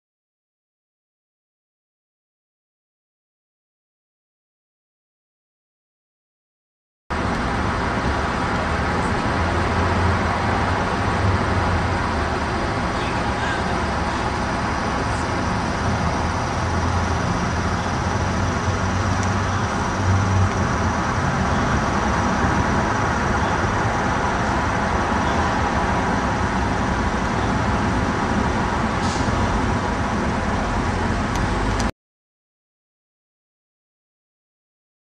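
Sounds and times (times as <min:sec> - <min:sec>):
rumble of passing vehicles: 0:07.1 - 0:31.9.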